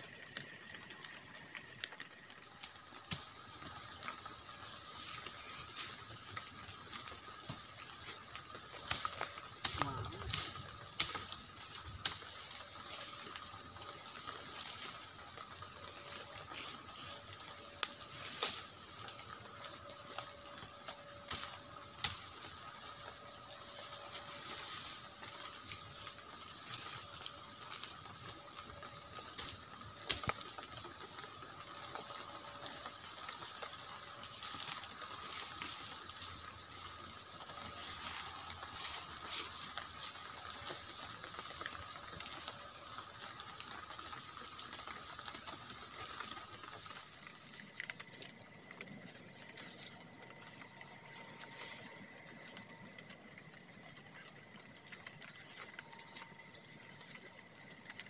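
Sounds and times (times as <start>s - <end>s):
leaves and twigs rustling: 0.0s - 58.0s.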